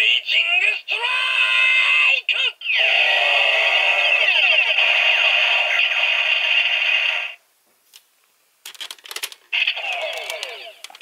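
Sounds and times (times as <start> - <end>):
toy gun electronic sound effect: 9.6 - 11.0.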